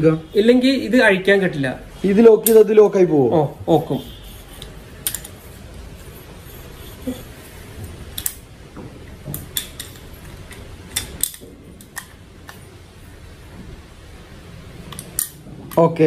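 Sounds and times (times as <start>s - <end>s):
metal parts clicking and clinking: 9.5s - 12.2s, 14.9s - 15.9s.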